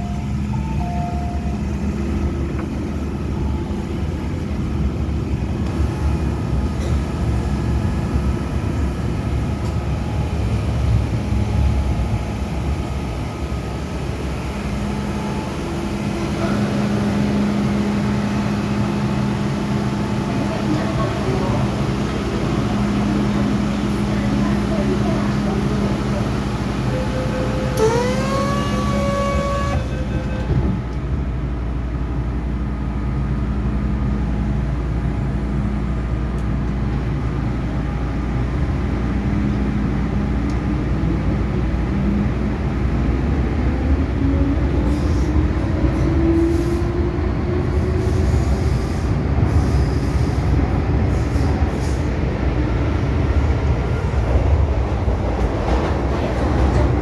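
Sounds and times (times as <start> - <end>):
low rumble of train car: 0.0 - 57.0
train motor whine rising: 27.4 - 30.6.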